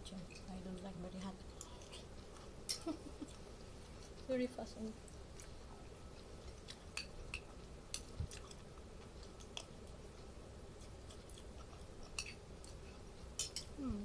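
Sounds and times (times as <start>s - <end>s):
person chewing food: 5.0s - 13.8s.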